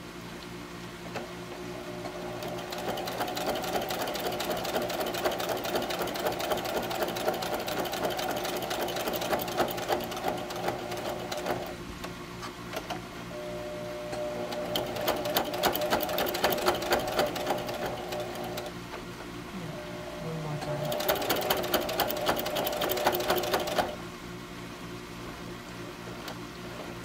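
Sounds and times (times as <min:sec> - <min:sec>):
sewing machine running: 0:01.9 - 0:11.8, 0:14.2 - 0:18.7, 0:20.6 - 0:24.0.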